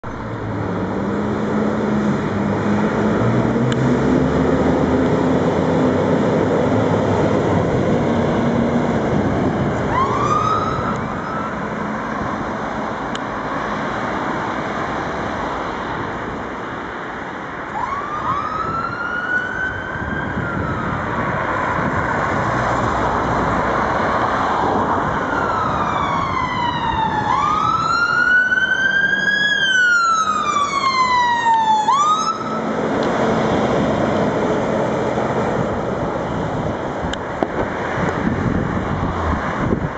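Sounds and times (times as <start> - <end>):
fire engine siren wailing: 0.0 - 12.5, 17.6 - 39.9
road noise: 0.0 - 39.9
engine pulling away: 0.2 - 13.5.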